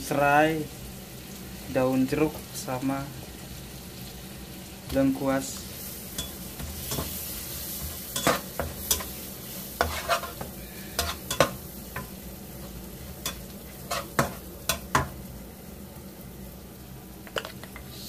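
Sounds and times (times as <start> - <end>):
paste sizzling in hot oil: 0.0 - 18.0
utensil scraping and tapping pan: 7.8 - 9.1, 9.8 - 12.1, 13.2 - 15.1.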